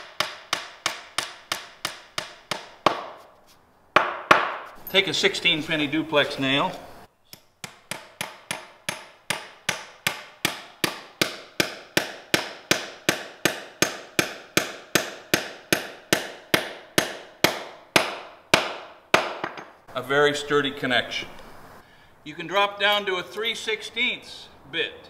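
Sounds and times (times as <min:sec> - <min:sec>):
hammer striking nail: 0:00.0 - 0:03.2, 0:04.0 - 0:04.8, 0:07.3 - 0:19.8.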